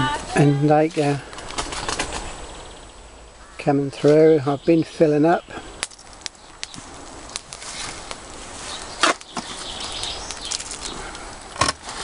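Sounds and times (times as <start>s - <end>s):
spade scraping compost: 6.8s - 12.0s.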